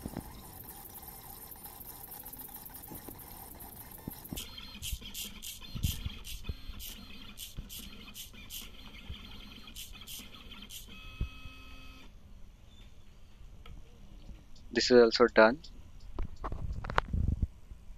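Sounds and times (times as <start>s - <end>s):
plotter motor whine: 0.0s - 12.1s
plotter motors buzzing: 0.0s - 12.1s.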